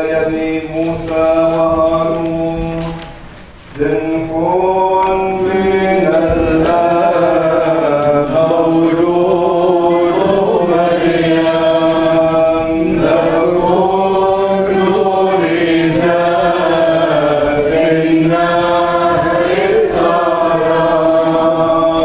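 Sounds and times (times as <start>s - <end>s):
congregation singing a hymn: 0.0s - 22.0s.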